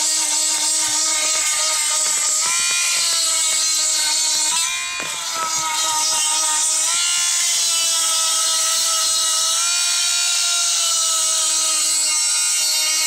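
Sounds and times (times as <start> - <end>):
chainsaw sharpener grinding whine: 0.0 - 13.0.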